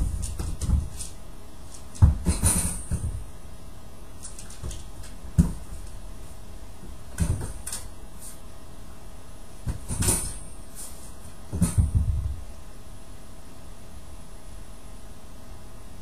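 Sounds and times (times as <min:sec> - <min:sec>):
dog bumping plastic crate: 0:00.0 - 0:03.3, 0:04.2 - 0:05.9, 0:07.1 - 0:07.9, 0:09.6 - 0:10.5, 0:11.5 - 0:12.4.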